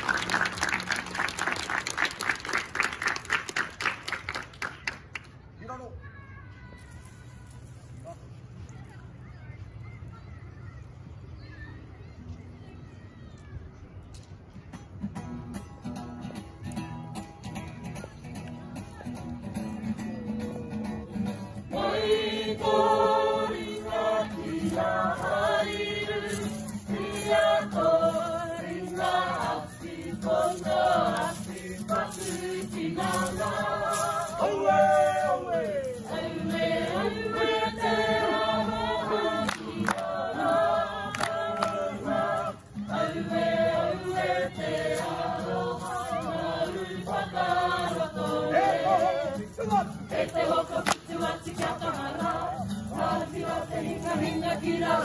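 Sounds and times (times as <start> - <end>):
group of men and women singing: 21.7 - 55.0.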